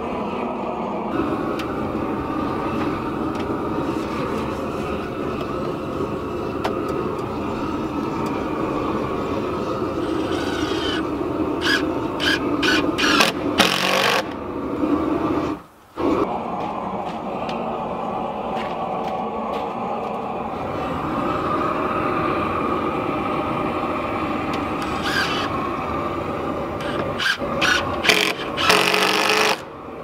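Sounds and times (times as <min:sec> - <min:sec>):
steady background drone: 0:00.0 - 0:30.0
cordless drill driving screws: 0:26.8 - 0:29.6.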